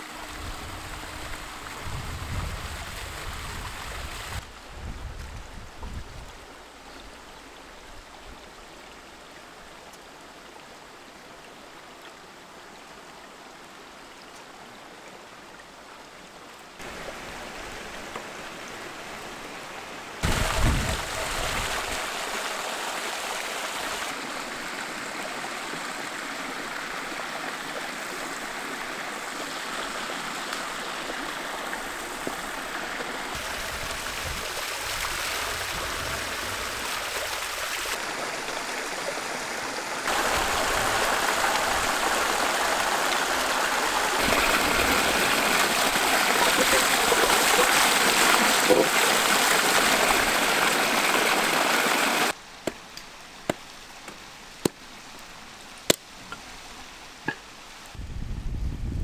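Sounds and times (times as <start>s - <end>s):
stream rushing over rocks: 0.0s - 4.8s, 6.2s - 58.0s
water pouring down cascade: 20.2s - 52.4s.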